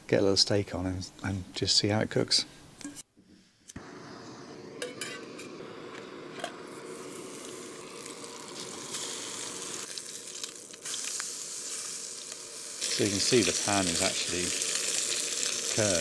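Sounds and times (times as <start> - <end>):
gas stove burner running: 3.8 - 10.0
steak sizzling: 3.8 - 16.0.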